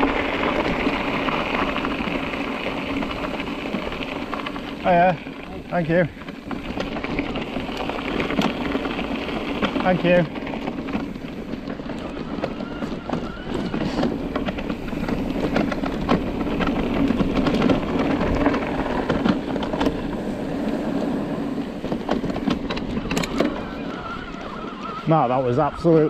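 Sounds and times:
bike tyres on rough trail: 0.0 - 26.0
small clicks and knocks: 21.8 - 23.7.

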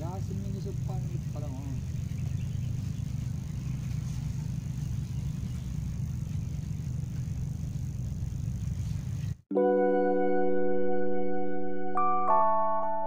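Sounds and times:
low outdoor rumble: 0.0 - 9.4
soft music with held notes: 9.5 - 13.0.

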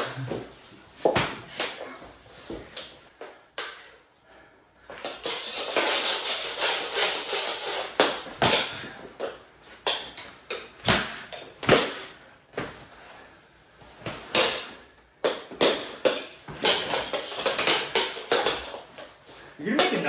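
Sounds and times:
hockey sticks scraping on floor: 4.8 - 10.7, 13.8 - 20.0.

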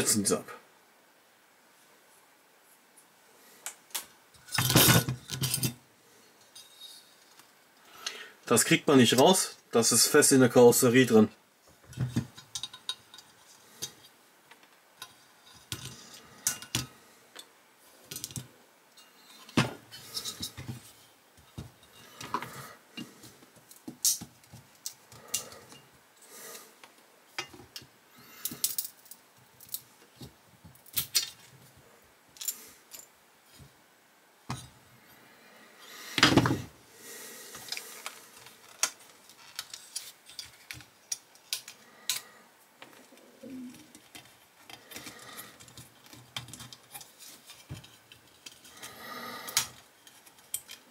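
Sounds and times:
clicks and scrapes of metal model: 37.7 - 42.3, 43.8 - 50.9.

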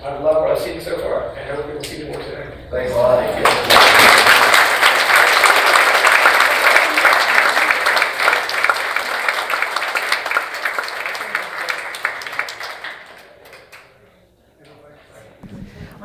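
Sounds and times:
audience applauding: 3.4 - 13.9.

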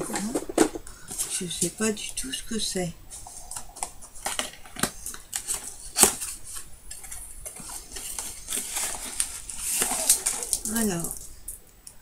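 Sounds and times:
cardboard box torn open: 8.1 - 10.8.

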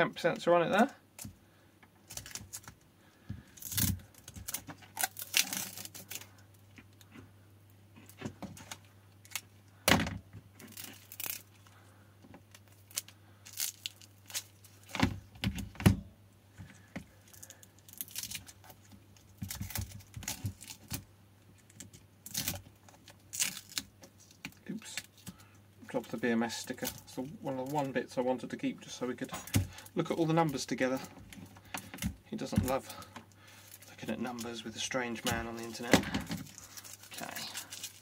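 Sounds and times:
sticky tape peeling: 3.6 - 6.4.

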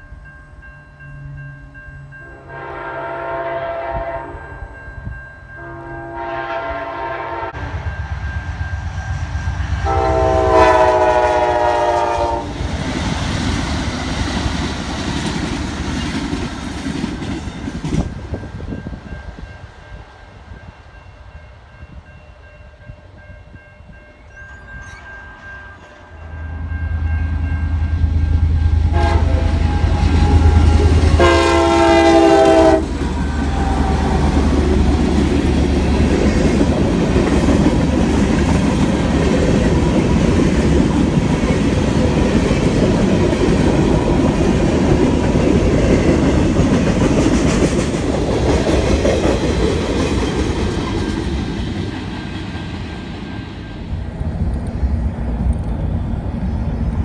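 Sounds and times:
crossing signal bell ringing: 0.0 - 6.4, 7.6 - 10.5, 18.2 - 36.1
locomotive horn blast: 2.2 - 4.6, 5.6 - 7.8, 9.8 - 12.6, 28.1 - 35.0
locomotive engine rumble: 26.6 - 42.2.

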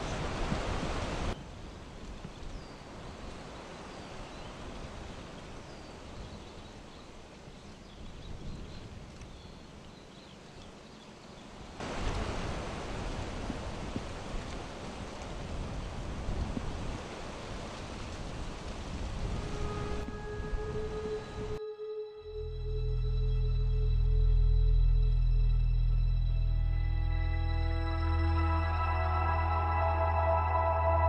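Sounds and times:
wind on microphone: 0.0 - 3.3, 7.8 - 9.4, 11.8 - 21.6.

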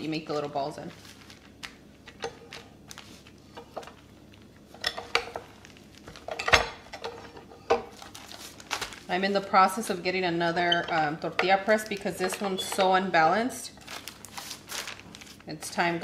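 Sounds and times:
plastic rustling: 0.0 - 6.4, 7.9 - 10.0, 13.7 - 15.8.

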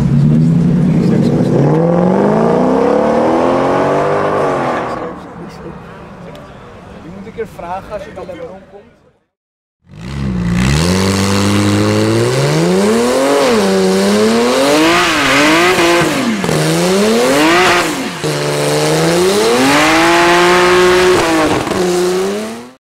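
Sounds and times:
car engine revving hard: 0.0 - 5.2, 9.9 - 22.8.

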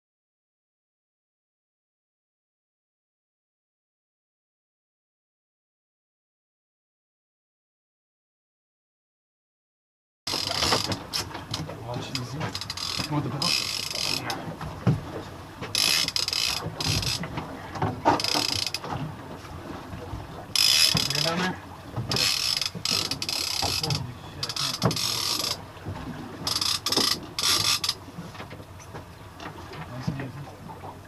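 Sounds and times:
fishing reels clicking and ratcheting: 10.3 - 14.4, 15.7 - 17.3, 18.0 - 18.9, 20.6 - 21.5, 22.1 - 25.6, 26.4 - 28.0.

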